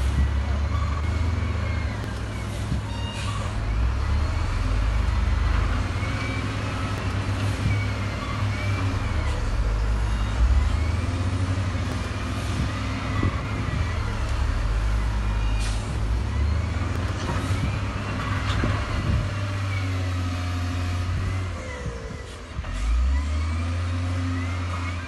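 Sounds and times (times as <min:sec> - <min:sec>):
diesel engine drone: 0:00.0 - 0:25.0
high-pitched machinery squeals: 0:00.7 - 0:04.5.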